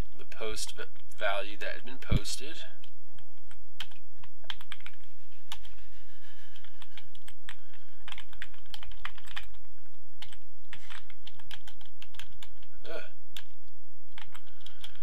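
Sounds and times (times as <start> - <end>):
low hum: 0.0 - 15.0
keyboard typing: 2.8 - 5.8, 6.5 - 15.0.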